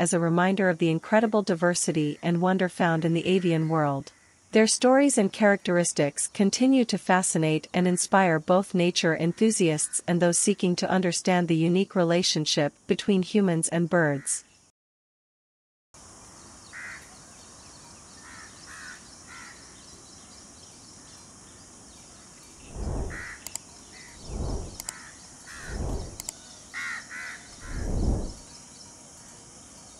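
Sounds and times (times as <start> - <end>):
low muffled whooshes: 22.6 - 23.3, 24.2 - 24.9, 25.6 - 26.3, 27.6 - 28.4.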